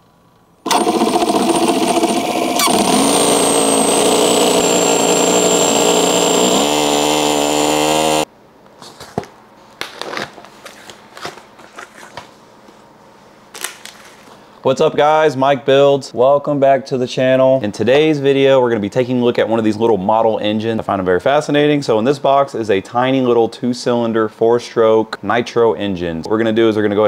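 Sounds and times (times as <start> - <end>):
model engine running: 0.7 - 8.3
package crinkling and clicking: 8.9 - 12.3, 13.5 - 14.3.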